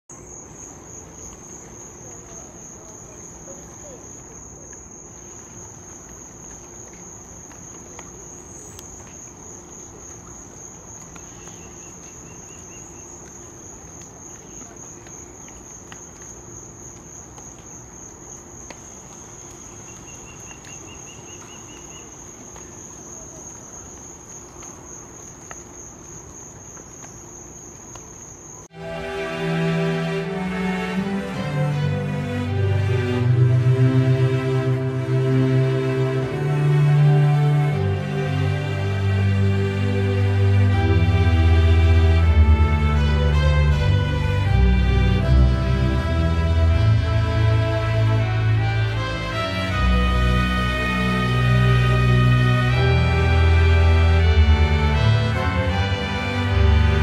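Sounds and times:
insect trilling: 0:00.1 - 0:28.7
short lower insect trill: 0:00.1 - 0:30.1
faint background hiss: 0:00.1 - 0:57.0.

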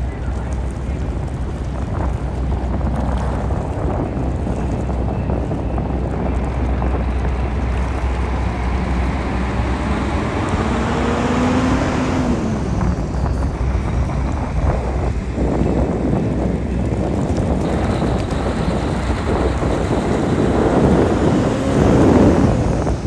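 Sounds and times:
wind noise on microphone: 0:00.0 - 0:23.0
diesel truck driving past: 0:06.2 - 0:16.9.

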